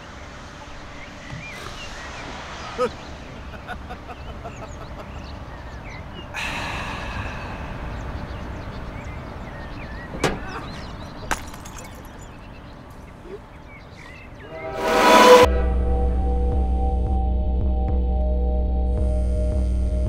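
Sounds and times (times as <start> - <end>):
small birds chirping: 0.0 - 14.6
steady outdoor noise: 0.0 - 17.3
gong-like musical tone: 14.6 - 17.1.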